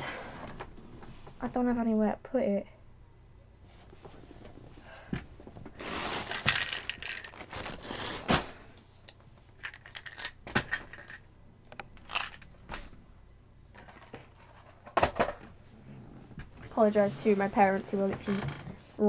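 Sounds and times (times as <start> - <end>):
papers rustling and crinkling: 5.4 - 8.6
objects knocking when put down: 13.8 - 15.5.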